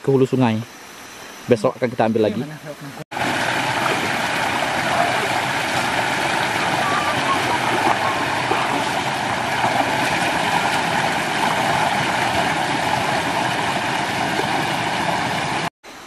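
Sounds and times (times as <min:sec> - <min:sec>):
stream rushing over rocks: 0:03.1 - 0:15.7.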